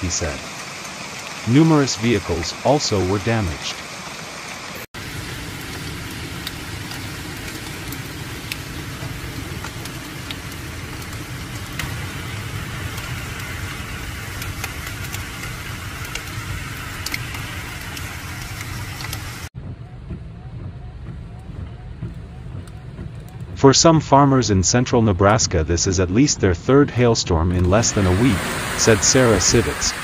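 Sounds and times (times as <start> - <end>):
rain hissing: 0.0 - 19.5, 27.5 - 30.0
hailstones clicking on hard ground: 5.0 - 19.5
low rumble: 5.0 - 30.0.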